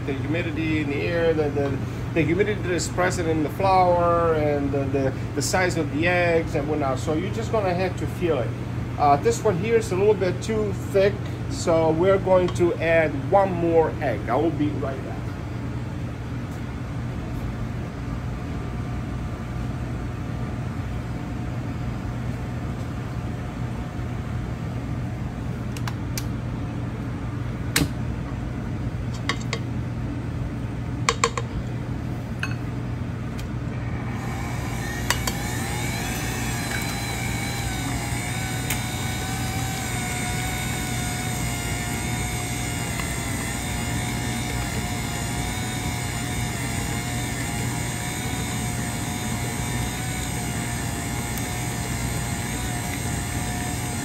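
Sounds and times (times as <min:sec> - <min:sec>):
steady background hum: 0:00.0 - 0:54.0
sharp clicks and knocks: 0:31.1 - 0:31.5
stand mixer motor whining: 0:33.8 - 0:54.0.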